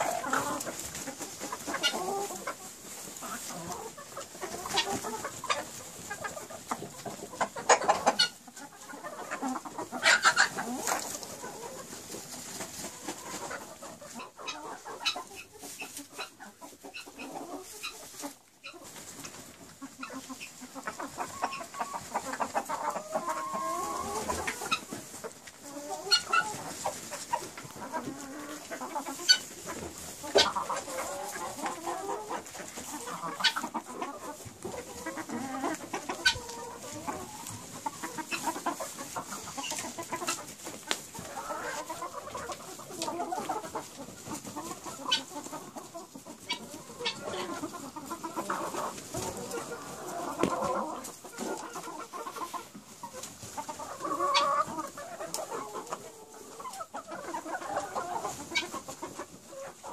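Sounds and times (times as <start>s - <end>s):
chickens clucking: 0.0s - 59.9s.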